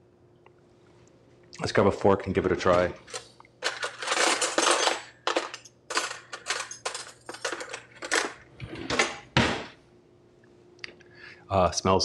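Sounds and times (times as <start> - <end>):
cutlery clinking: 3.1 - 8.4.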